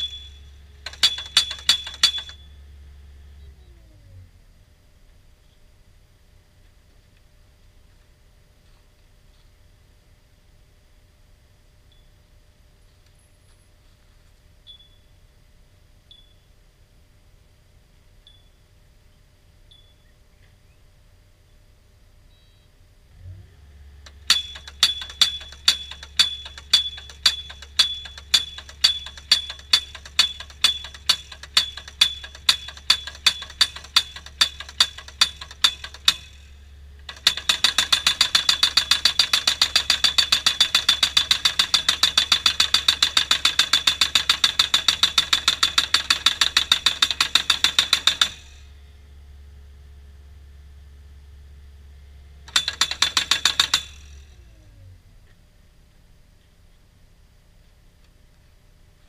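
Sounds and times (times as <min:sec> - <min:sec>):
post driver hammering steel post: 0:00.0 - 0:02.4, 0:24.1 - 0:48.6, 0:52.5 - 0:54.3
low hum: 0:00.0 - 0:37.4.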